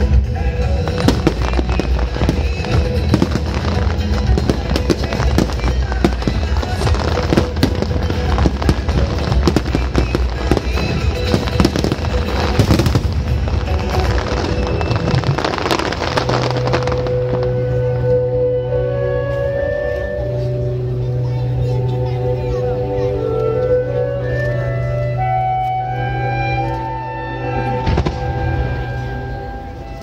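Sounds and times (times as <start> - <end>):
loud music with heavy bass: 0.0 - 17.7
fireworks bursting and crackling: 0.0 - 18.2, 27.5 - 30.0.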